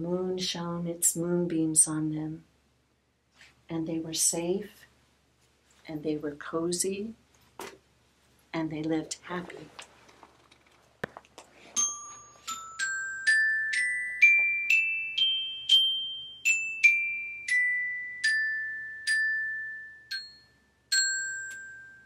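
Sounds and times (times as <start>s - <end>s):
glockenspiel notes: 11.7s - 22.0s.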